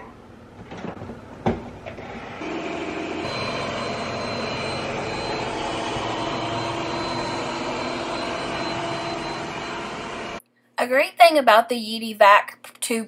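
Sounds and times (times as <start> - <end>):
robot vacuum whirring: 2.2 - 10.4
faint steady tones: 3.2 - 10.4.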